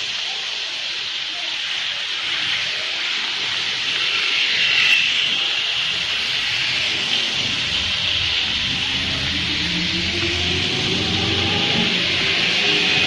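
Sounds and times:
rain hissing: 0.0s - 13.0s
tyres on wet street: 0.0s - 13.0s
vehicle engine: 5.8s - 13.0s.

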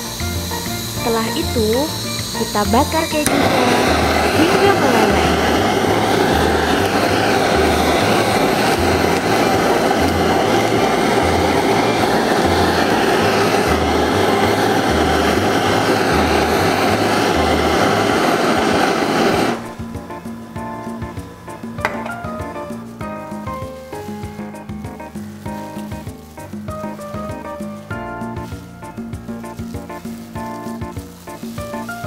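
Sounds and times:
blowtorch flame hissing: 0.0s - 32.0s.

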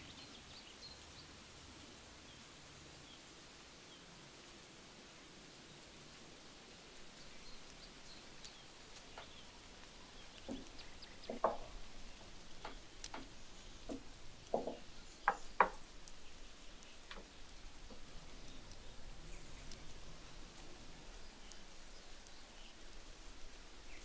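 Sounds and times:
faint bird chirps: 7.1s - 24.0s
light knocks and clicks: 10.2s - 16.2s.

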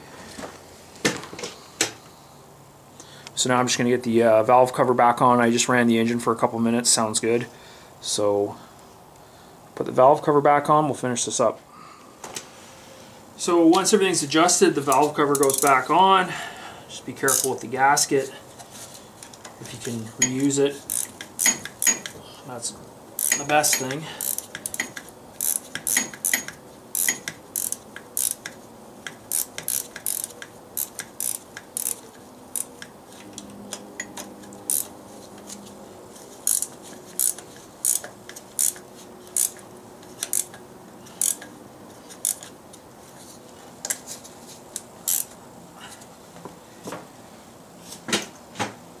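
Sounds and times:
ratchet wrench clicking: 15.3s - 15.8s, 17.3s - 17.6s, 20.2s - 22.2s, 23.2s - 32.9s, 34.0s - 34.9s, 36.4s - 41.5s, 42.1s - 42.5s, 45.0s - 45.4s
metal tool clinks: 23.2s - 24.0s.

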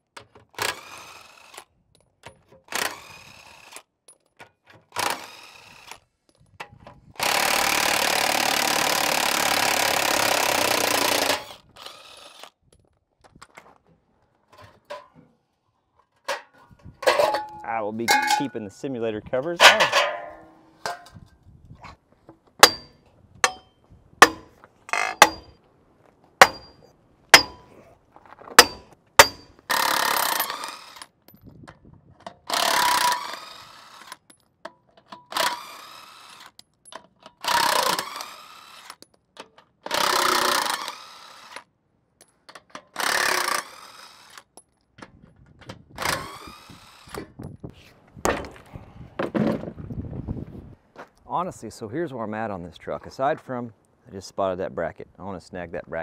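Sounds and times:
power tool bursts: 7.2s - 12.4s, 35.3s - 36.4s, 37.4s - 39.0s, 39.9s - 41.6s, 43.0s - 44.4s, 46.0s - 47.2s.

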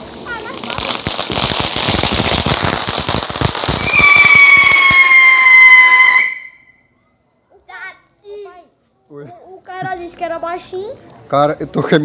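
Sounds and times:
firework crackling hiss: 0.0s - 6.7s
firework whistle falling in pitch: 3.7s - 6.8s.

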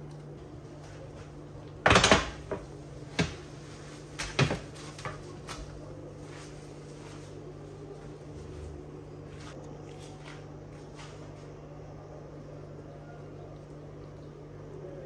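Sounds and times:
oven door knocks and clicks: 1.8s - 3.5s.

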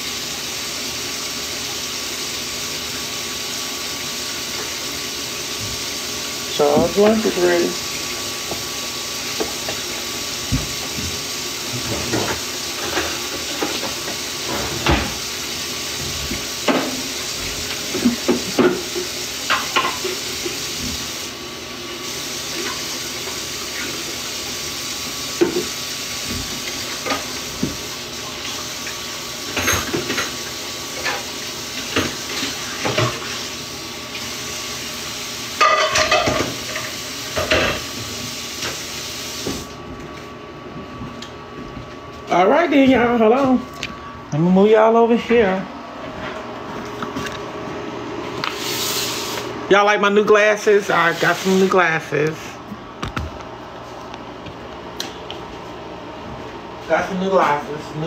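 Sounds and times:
dishes and utensils clinking: 35.6s - 37.8s.

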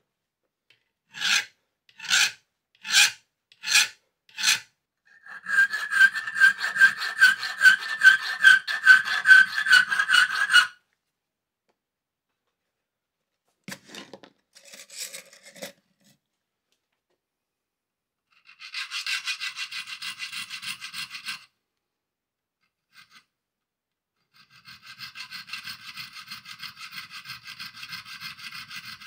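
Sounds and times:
hand file strokes on steel: 1.1s - 10.8s, 18.3s - 21.5s, 22.6s - 23.3s, 24.2s - 29.0s.

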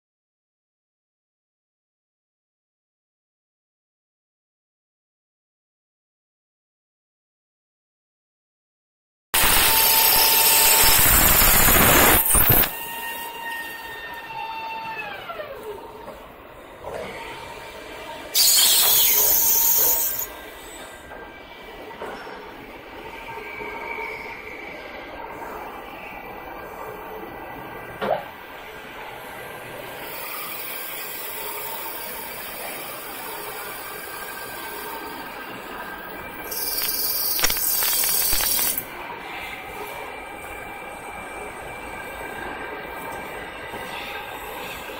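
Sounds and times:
loud hiss: 9.4s - 12.7s, 18.4s - 20.3s, 36.5s - 38.8s
machine motor whine: 36.4s - 38.9s
high-pitched hiss: 36.5s - 38.8s.

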